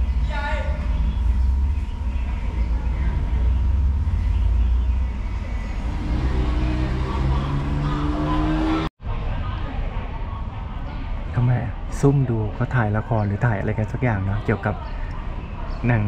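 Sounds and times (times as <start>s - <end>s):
diesel train engine rumbling: 0.0s - 8.0s.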